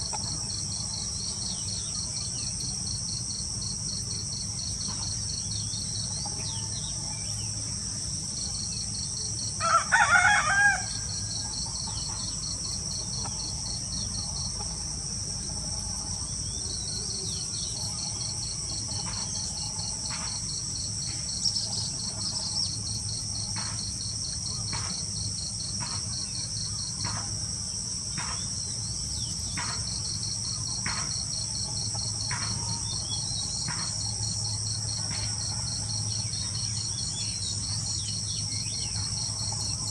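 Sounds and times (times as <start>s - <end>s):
crickets and insects trilling: 0.0s - 39.9s
rooster crowing: 9.6s - 11.4s.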